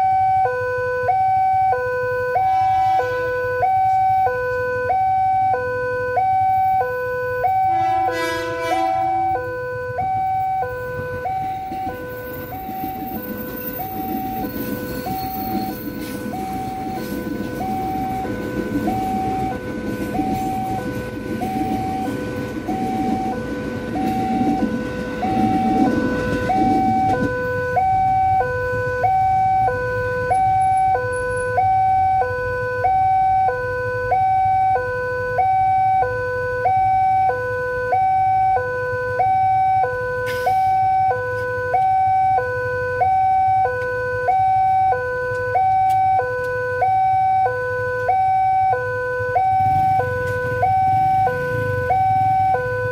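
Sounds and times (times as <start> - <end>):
two-tone crossing alarm: 0.0 - 52.9
electric train rumbling past: 2.4 - 4.2, 7.7 - 31.6, 49.2 - 52.9.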